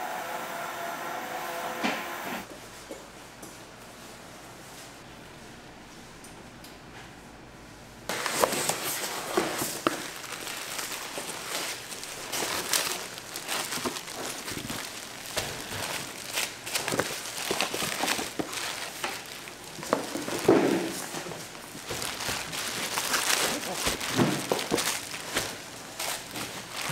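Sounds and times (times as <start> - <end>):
crinkling and rustling: 8.1 - 26.9.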